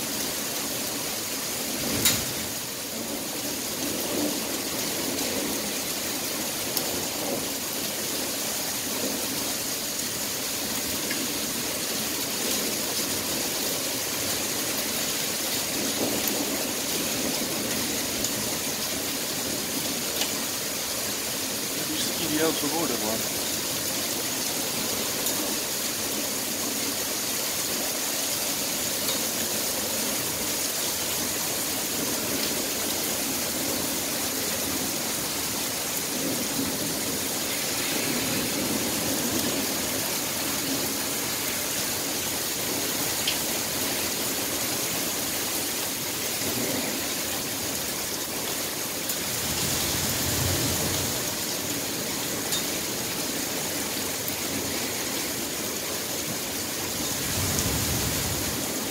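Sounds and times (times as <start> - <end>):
heavy rain pouring: 0.0 - 58.9
low rumble of thunder: 36.0 - 40.0, 49.2 - 51.4, 57.0 - 58.8.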